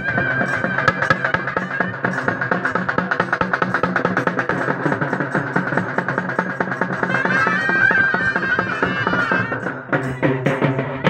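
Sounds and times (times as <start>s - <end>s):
wind instrument wavering melody: 0.0s - 3.8s, 6.6s - 11.0s
drums beaten fast: 0.0s - 11.0s.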